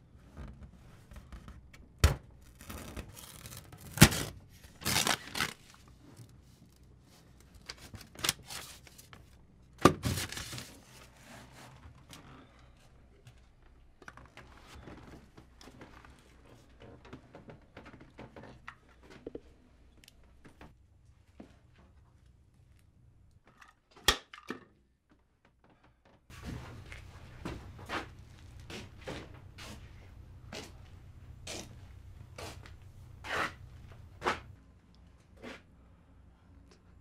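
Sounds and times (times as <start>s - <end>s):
tearing and crinkling: 2.4s - 9.2s.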